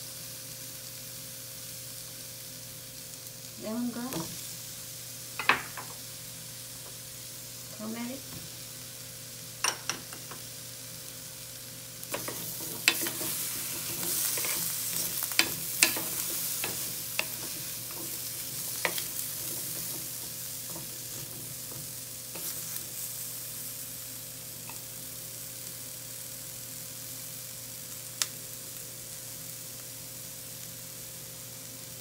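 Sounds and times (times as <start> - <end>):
vegetables sizzling in oil: 0.0 - 32.0
spoon knocking against pot: 5.4 - 5.9.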